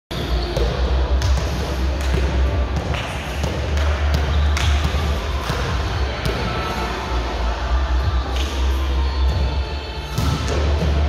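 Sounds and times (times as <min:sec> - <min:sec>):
ball bouncing on gym floor: 0:00.4 - 0:06.5.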